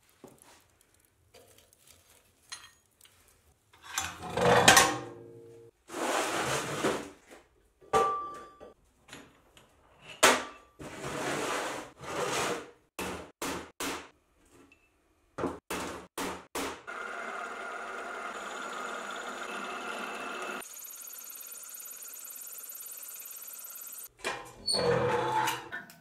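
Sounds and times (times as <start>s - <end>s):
drill press running: 16.9s - 24.1s.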